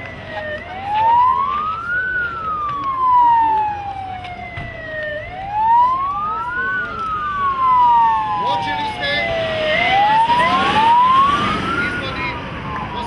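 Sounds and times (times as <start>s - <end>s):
sirens wailing: 0.0s - 13.0s.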